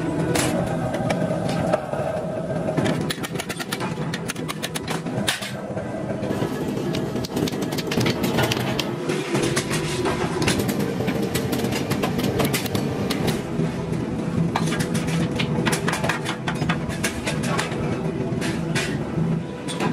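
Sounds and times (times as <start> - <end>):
machine hum: 0.0 - 19.9.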